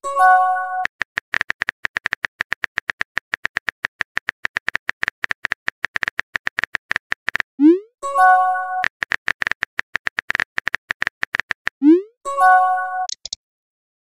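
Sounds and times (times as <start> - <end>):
keyboard tap clicks: 0.9 - 7.5, 8.8 - 11.8.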